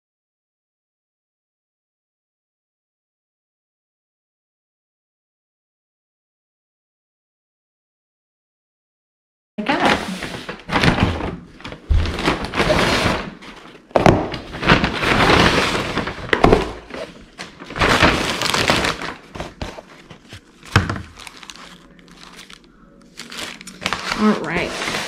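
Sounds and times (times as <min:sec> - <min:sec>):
paper bag rustling: 0:09.6 - 0:25.0
items knocking on table: 0:13.9 - 0:14.5, 0:16.3 - 0:17.0, 0:20.7 - 0:21.2.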